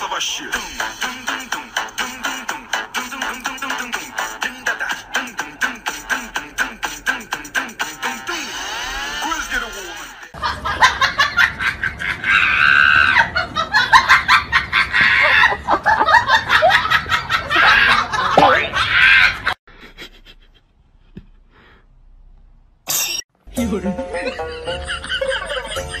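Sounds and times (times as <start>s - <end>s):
people laughing hard: 10.3s - 21.3s, 24.1s - 26.0s.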